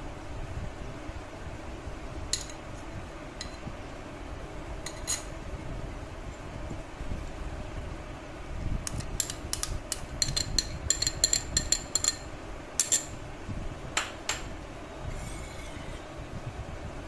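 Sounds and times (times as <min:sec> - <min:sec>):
metal spoon clinking on glass bowls: 0:10.2 - 0:13.1.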